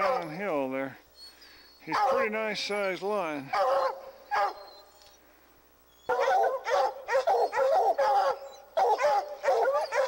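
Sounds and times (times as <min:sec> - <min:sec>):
dogs barking: 0:00.0 - 0:00.4, 0:01.8 - 0:02.5, 0:03.5 - 0:04.8, 0:06.1 - 0:10.0.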